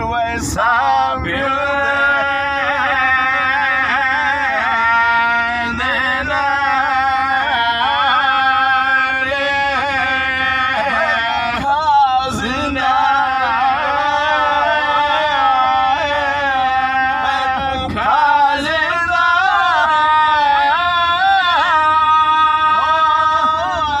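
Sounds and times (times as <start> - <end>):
man chanting religious recitation: 0.0 - 24.0.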